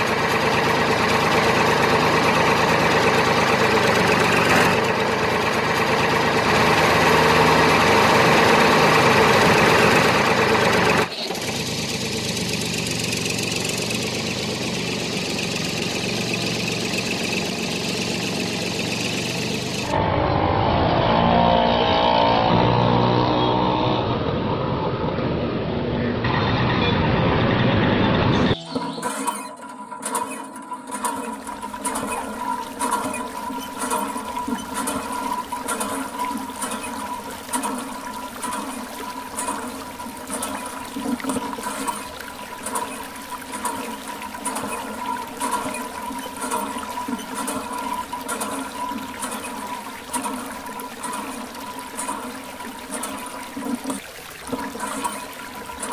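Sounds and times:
vehicle engine humming: 0.0s - 55.9s
water splashing from tube: 29.0s - 55.9s.

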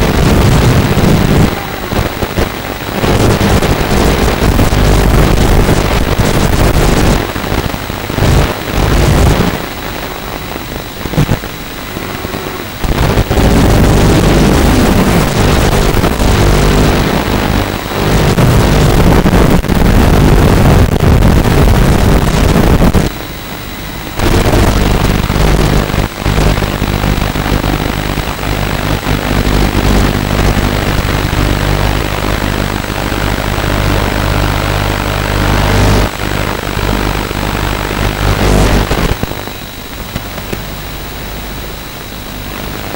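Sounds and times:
quadcopter motors whining: 0.0s - 5.0s.

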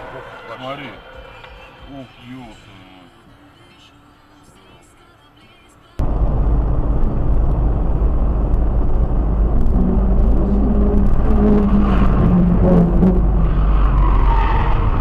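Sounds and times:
engine note rising and falling: 6.0s - 15.0s
road noise inside car: 6.0s - 15.0s.

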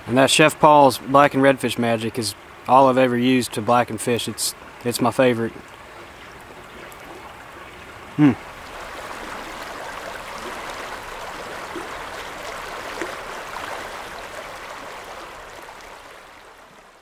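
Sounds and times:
creek water rushing over rocks: 0.0s - 17.0s
small water splashes: 3.8s - 17.0s.

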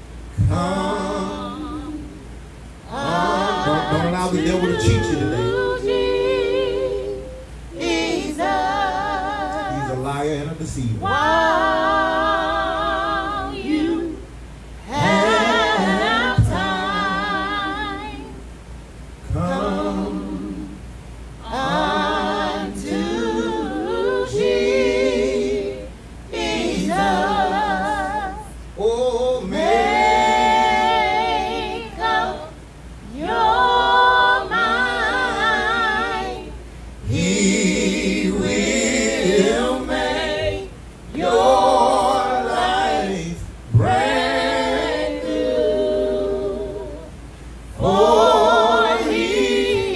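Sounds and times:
person singing with vibrato: 0.3s - 10.2s.

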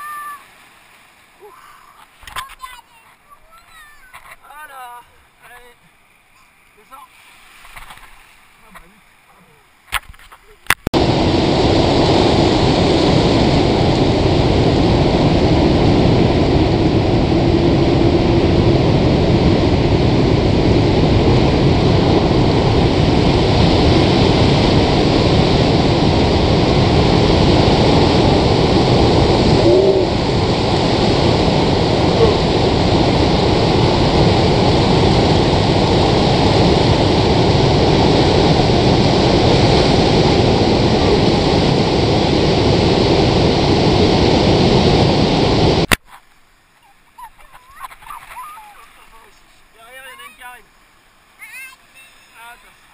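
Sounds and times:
surf breaking: 0.0s - 9.2s, 9.8s - 52.9s.

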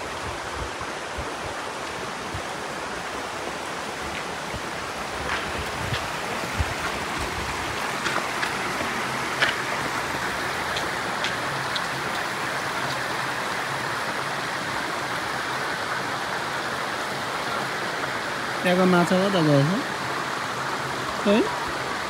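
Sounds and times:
creek water rushing over rocks: 0.0s - 22.0s
small clicks and splashes: 10.6s - 13.1s.

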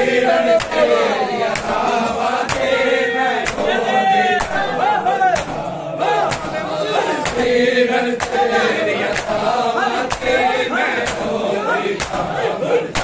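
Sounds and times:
men chanting a lament in chorus: 0.0s - 13.0s
hands striking chest: 0.6s - 0.9s, 2.5s - 2.8s, 5.4s - 6.6s, 7.2s - 7.5s, 8.2s - 8.5s, 10.1s - 10.4s, 12.0s - 12.3s.

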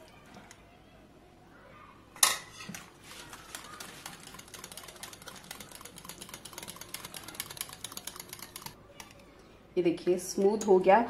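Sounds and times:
whisk clicking against ceramic bowl: 2.7s - 9.2s.

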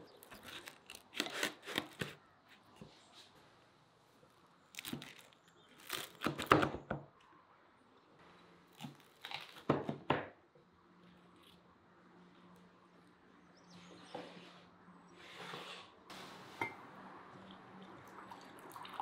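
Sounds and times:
knife crunching through crust: 0.2s - 2.2s, 4.8s - 6.6s.

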